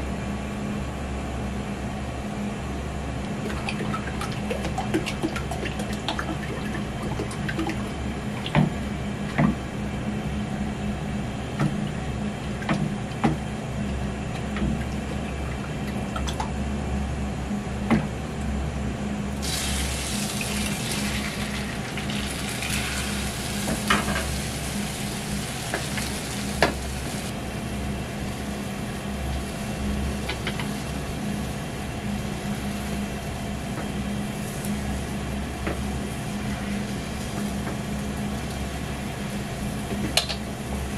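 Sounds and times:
egg sizzling in a pan: 0:19.4 - 0:27.3.

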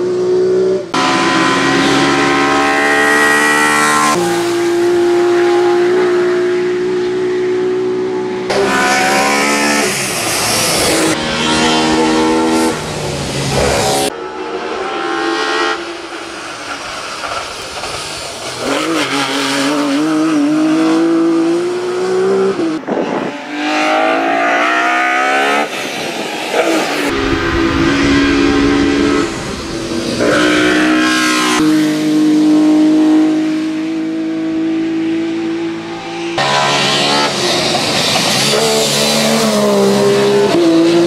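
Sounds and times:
race car engine accelerating: 0:26.5 - 0:35.5.

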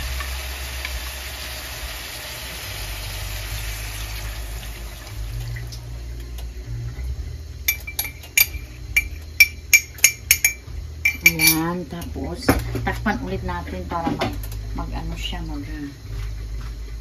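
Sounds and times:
frying hiss: 0:00.0 - 0:17.0
utensil clinking against pot: 0:07.7 - 0:11.8.

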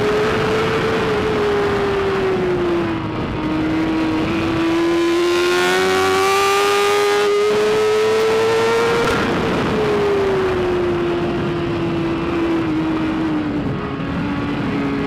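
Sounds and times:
motorcycle engine at high revs: 0:00.0 - 0:15.0.

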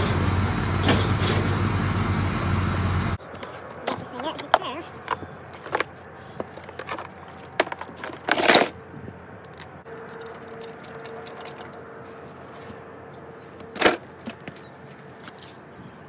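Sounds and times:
tools rattling: 0:04.2 - 0:08.8, 0:09.4 - 0:11.9
metal hand tools clinking: 0:09.4 - 0:11.8.

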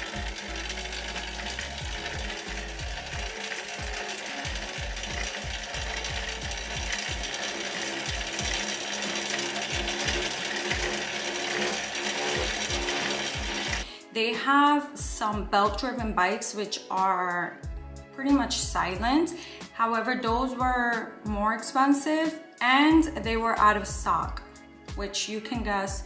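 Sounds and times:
low rhythmic knock: 0:00.0 - 0:13.8
spin bike flywheel whirring: 0:00.0 - 0:13.9.

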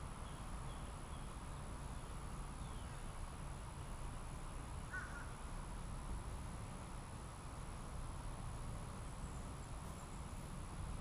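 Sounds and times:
bird call: 0:04.9 - 0:05.4.

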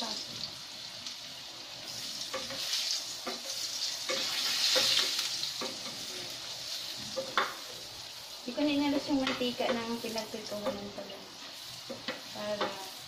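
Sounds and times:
hot oil sizzling in frying pan: 0:00.0 - 0:13.0
spatula knocking and scraping pan: 0:02.3 - 0:06.1, 0:07.0 - 0:07.8, 0:09.0 - 0:11.0, 0:11.8 - 0:12.9.

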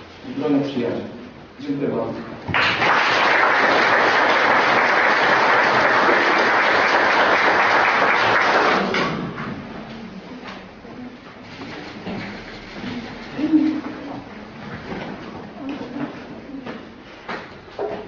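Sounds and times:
audience applauding: 0:02.5 - 0:09.0.

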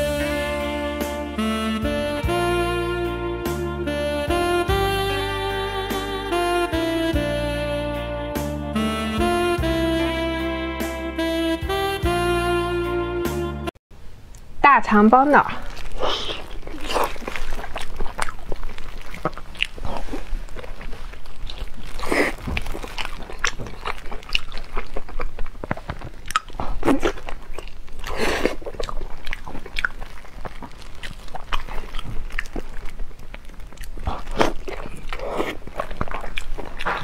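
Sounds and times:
chewing and wet mouth sounds: 0:15.5 - 0:37.0
bun torn apart: 0:15.6 - 0:36.8.

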